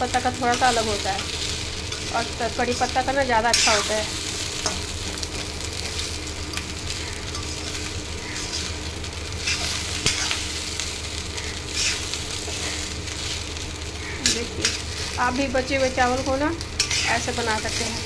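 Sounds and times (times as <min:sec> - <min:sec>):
rice sizzling in a wok: 0:00.0 - 0:18.0
metal spatula scraping a wok: 0:03.5 - 0:04.0, 0:05.8 - 0:10.6, 0:11.6 - 0:13.2, 0:15.8 - 0:18.0.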